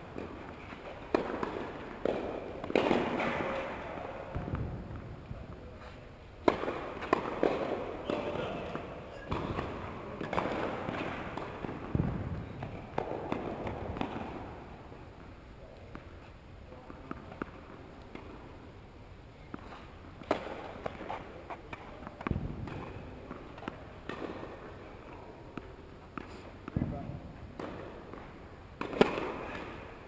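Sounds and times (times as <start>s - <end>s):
tennis balls struck and bouncing: 0.1s - 18.7s, 19.5s - 30.0s.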